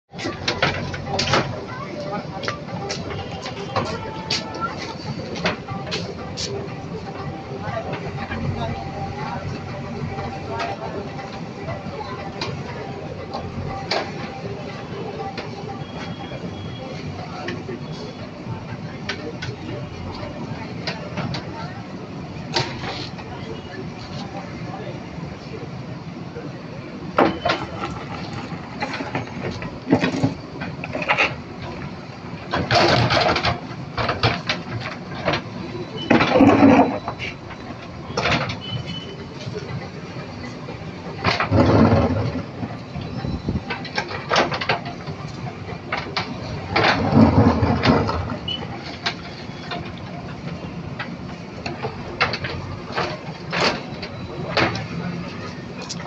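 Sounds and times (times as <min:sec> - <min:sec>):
bucket scraping through rubble: 0:36.0 - 0:37.4, 0:41.3 - 0:42.6, 0:46.2 - 0:49.6.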